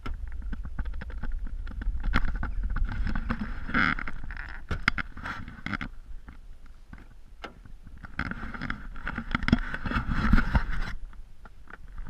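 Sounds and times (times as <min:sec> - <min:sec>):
low rumble: 0:00.0 - 0:08.2
rubbing on camera: 0:02.1 - 0:05.9, 0:08.2 - 0:11.0.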